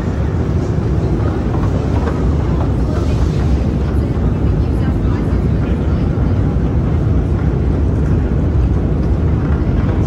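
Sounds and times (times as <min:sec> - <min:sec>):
escalator rumbling: 0:00.0 - 0:10.0.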